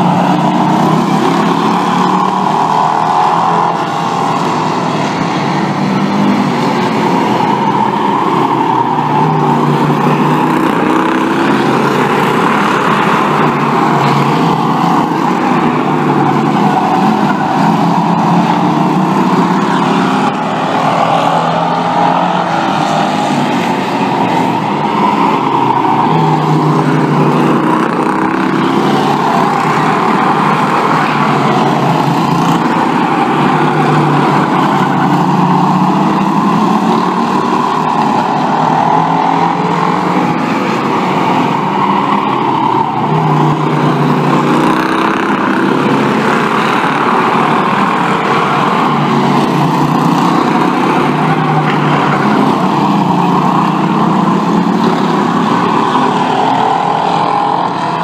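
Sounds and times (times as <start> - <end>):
race car engines passing: 0.0 - 58.0.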